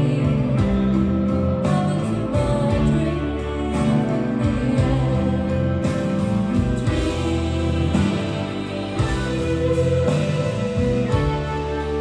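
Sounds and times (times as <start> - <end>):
live rock band playing: 0.0 - 12.0
drum or cymbal hits: 5.8 - 12.0.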